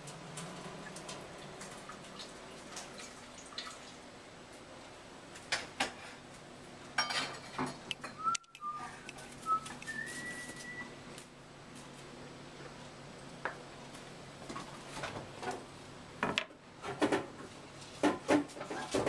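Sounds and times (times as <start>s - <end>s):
person whistling: 8.2s - 11.0s.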